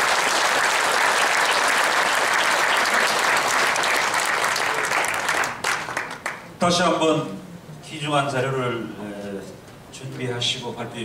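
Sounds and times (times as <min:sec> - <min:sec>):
audience clapping: 0:00.0 - 0:06.6.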